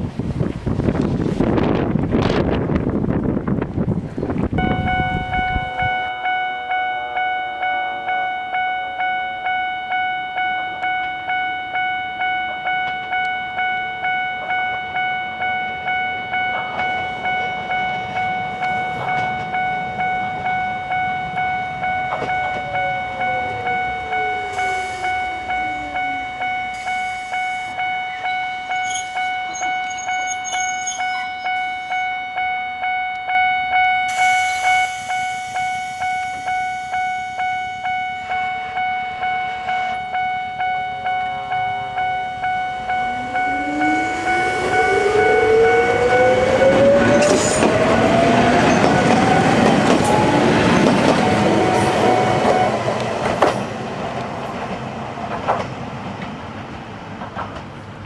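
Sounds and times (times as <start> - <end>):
level crossing warning bell: 4.6 - 54.7
electric train motor whine: 15.6 - 27.8, 41.2 - 53.8.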